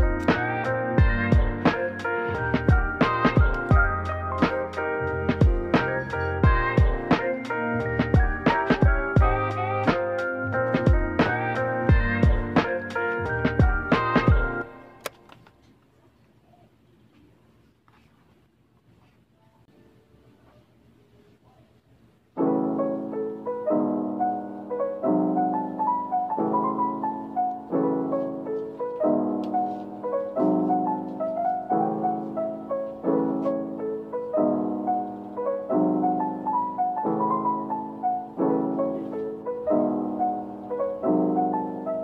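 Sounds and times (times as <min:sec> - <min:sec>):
piano music: 0:00.0 - 0:15.2, 0:22.3 - 0:42.0.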